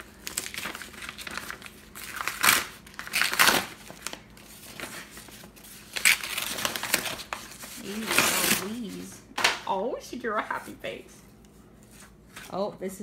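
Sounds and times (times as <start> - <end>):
paper envelope ripping: 0.0 - 9.0.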